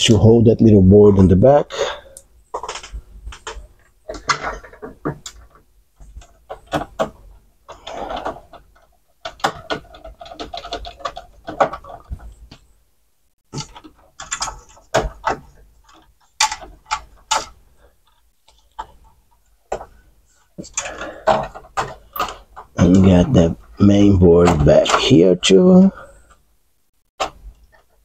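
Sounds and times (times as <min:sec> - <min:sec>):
hands handling circuit board: 0:02.5 - 0:12.7, 0:13.5 - 0:25.5.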